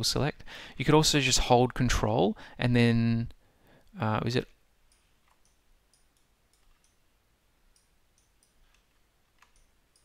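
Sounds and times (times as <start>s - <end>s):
computer mouse clicks: 4.9s - 7.0s, 7.7s - 10.0s.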